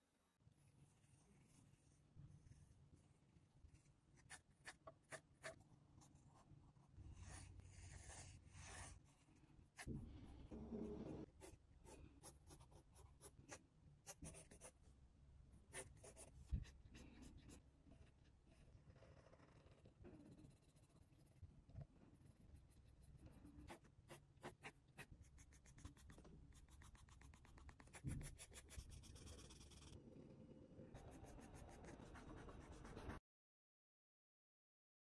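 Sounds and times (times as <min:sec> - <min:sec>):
pencil scratching on paper: 0:04.2 - 0:06.5, 0:07.1 - 0:09.2, 0:09.8 - 0:14.8, 0:15.7 - 0:21.4, 0:22.2 - 0:30.0, 0:31.0 - 0:33.2.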